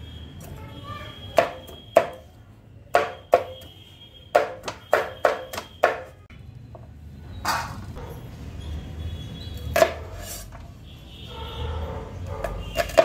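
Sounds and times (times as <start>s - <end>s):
cleaver chopping on wooden board: 1.4s - 2.2s, 3.0s - 3.6s, 4.4s - 6.1s.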